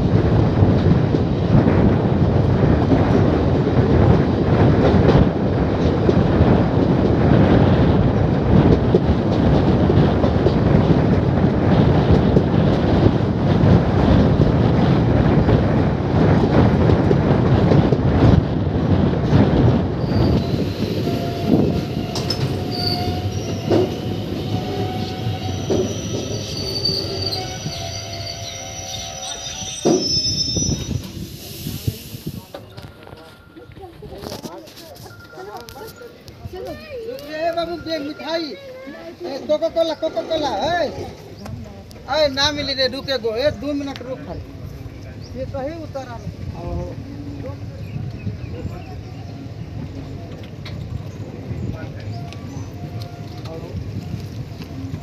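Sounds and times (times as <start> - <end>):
train wheels rumbling on rails: 0.0 - 55.0
high metallic brake squeals: 20.0 - 33.4.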